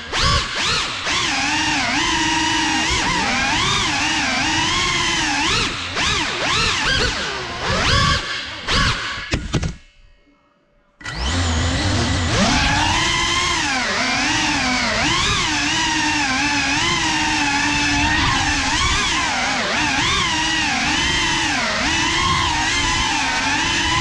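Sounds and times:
drone motors whining: 0.0s - 9.3s, 11.0s - 24.0s.

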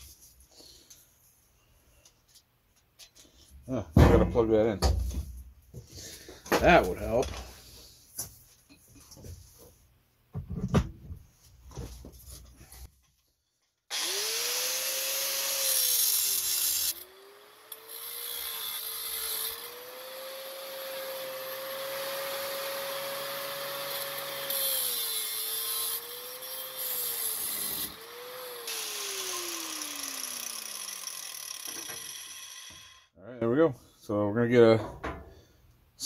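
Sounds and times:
angle grinder grinding wood: 13.9s - 33.1s
grinder spinning down: 13.9s - 33.1s.

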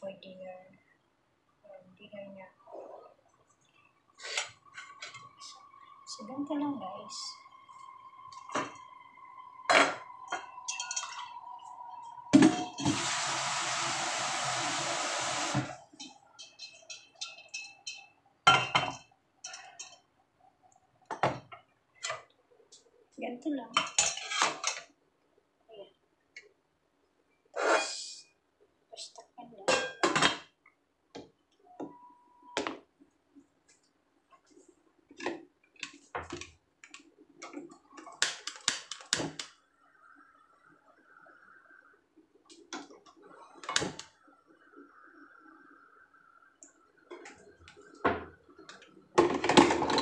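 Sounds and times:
dishes and pot clinking: 9.7s - 11.5s, 16.0s - 20.0s, 23.8s - 24.9s, 29.7s - 30.5s
running tap water: 12.8s - 15.7s
gas flame hissing: 12.8s - 15.8s.

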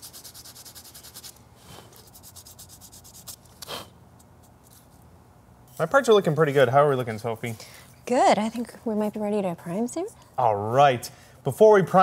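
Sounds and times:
sandpaper scraping plastic: 0.0s - 3.6s
short brushing rub: 0.0s - 5.0s.

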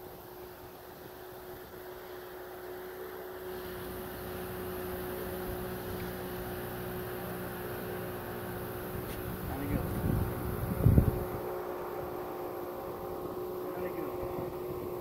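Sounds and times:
boat motor hum: 0.0s - 15.0s
deep drone: 0.0s - 15.0s.

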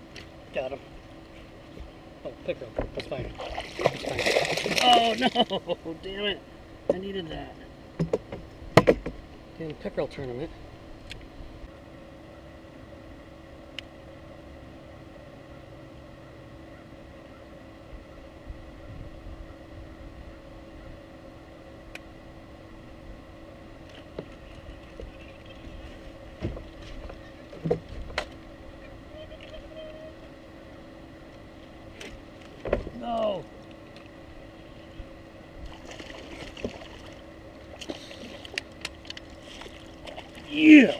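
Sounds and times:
boat motor humming: 0.0s - 40.9s
sharp knocks and clicks: 8.0s - 9.2s.

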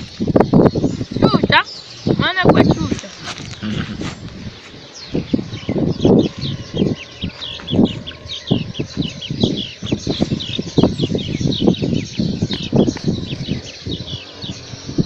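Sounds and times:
small birds chirping: 0.0s - 15.0s
thumps and rustles near microphone: 2.5s - 4.8s.

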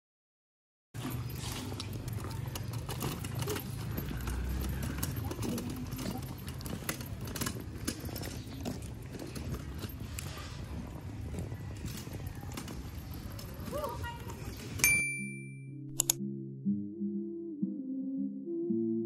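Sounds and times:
footsteps in sandals: 1.0s - 14.8s
wheelchair rolling over concrete: 1.0s - 15.0s.

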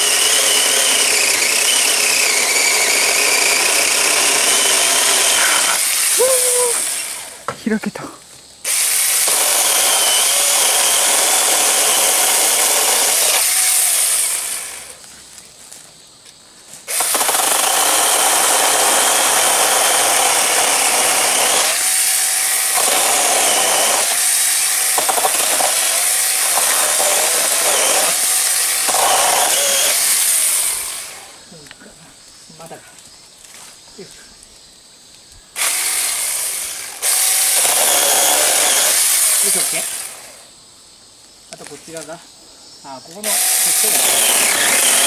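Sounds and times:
electric chainsaw cutting wood: 0.0s - 7.6s, 8.7s - 15.0s, 16.9s - 31.4s, 35.6s - 40.5s, 43.2s - 45.0s.

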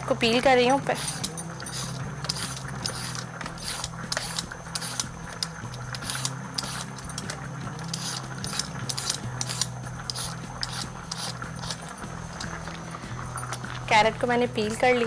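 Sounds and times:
low steady hum: 0.0s - 15.0s
peeler scraping carrot: 0.7s - 12.6s.

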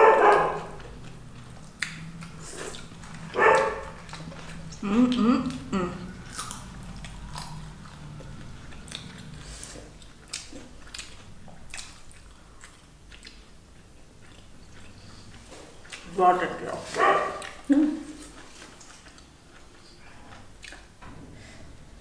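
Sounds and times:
chewing and biting fruit: 0.0s - 16.2s, 16.9s - 21.0s
wet mouth clicks and smacks: 1.7s - 2.9s, 10.0s - 13.5s.

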